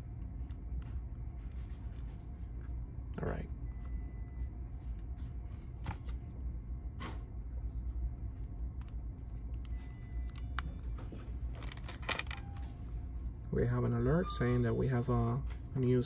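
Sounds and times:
steady low hum: 0.0s - 16.0s
plastic clicks of card insertion: 9.6s - 12.7s.

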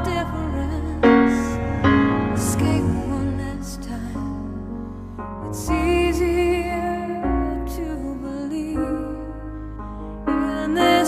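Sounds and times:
sustained low bass: 0.0s - 4.9s
slow tender melody with vibrato: 0.0s - 11.0s.

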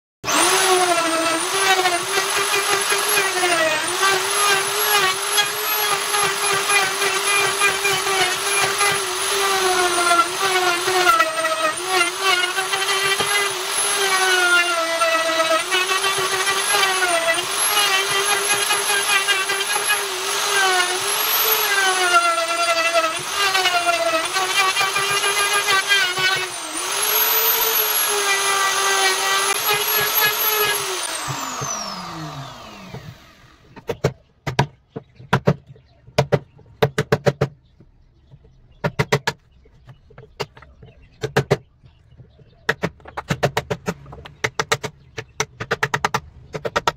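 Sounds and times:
router motor whine cutting wood: 0.2s - 33.8s.

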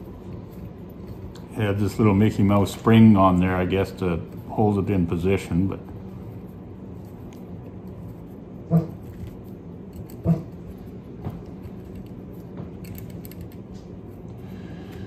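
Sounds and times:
steady low hum: 0.0s - 15.0s
small metal clicks: 12.8s - 13.8s.

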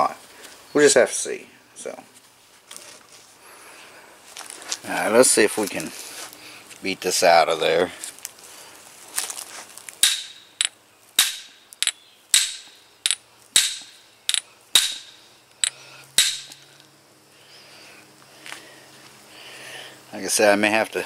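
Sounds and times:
hammer striking steel punch: 10.0s - 11.6s, 12.3s - 15.2s, 16.2s - 16.6s.

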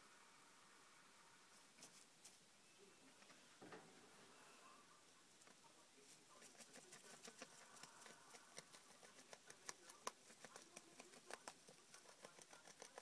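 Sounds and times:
rabbit rustling cardboard tube: 5.5s - 13.0s.

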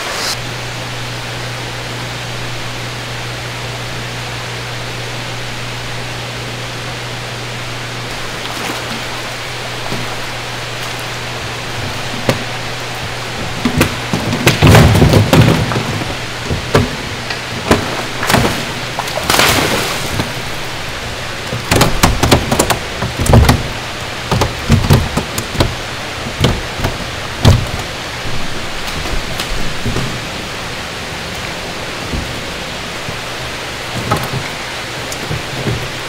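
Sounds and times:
low hum: 0.0s - 36.0s
water rushing: 0.0s - 36.0s
knocks and thumps: 10.8s - 20.7s, 21.4s - 30.5s, 31.9s - 36.0s.

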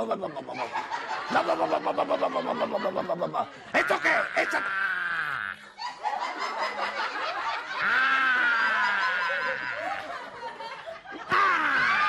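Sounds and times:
audience laughter: 0.0s - 4.0s, 5.6s - 12.0s
man shrieking in falsetto: 3.8s - 5.6s, 11.3s - 12.0s.

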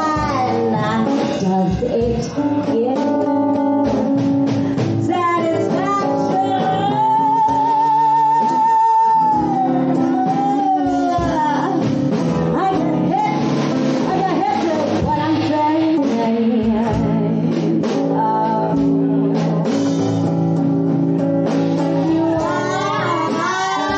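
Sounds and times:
person singing: 0.0s - 3.6s, 4.8s - 11.9s, 14.0s - 20.2s, 21.8s - 23.9s
live band music: 0.0s - 23.9s.

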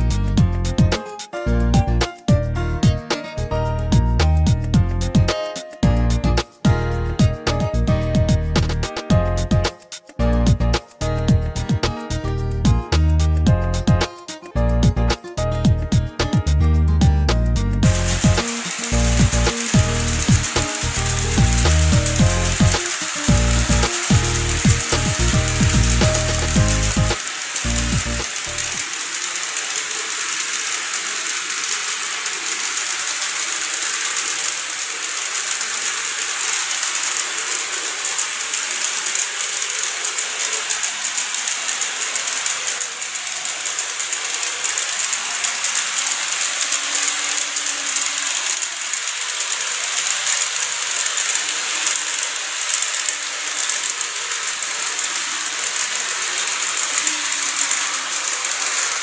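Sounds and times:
model train motor whirring: 17.8s - 59.0s
small wheels clicking over rail joints: 17.8s - 59.0s.

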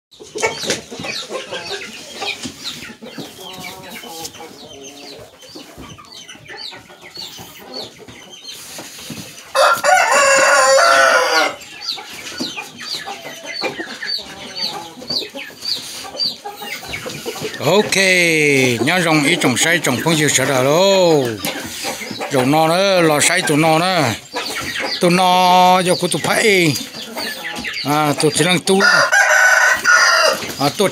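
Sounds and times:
chicken clucking: 0.1s - 30.9s
rooster crowing: 9.6s - 11.6s, 28.8s - 30.4s.

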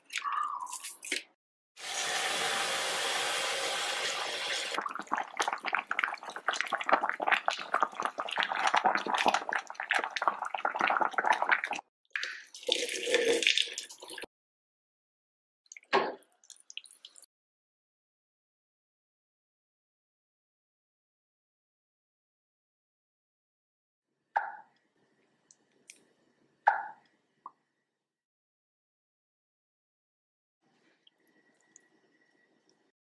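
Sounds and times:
water boiling with crackling pops: 4.8s - 11.8s.

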